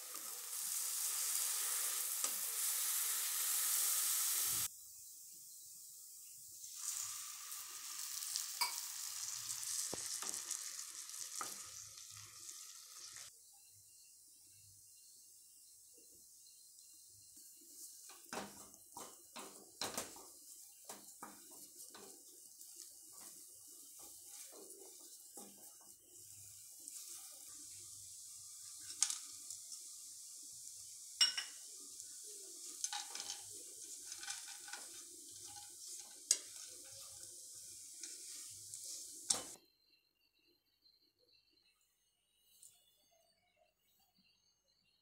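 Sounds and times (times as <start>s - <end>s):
faint sizzle of ghee: 0.0s - 39.6s
wooden spatula scraping a pan: 17.8s - 27.8s, 32.0s - 39.6s.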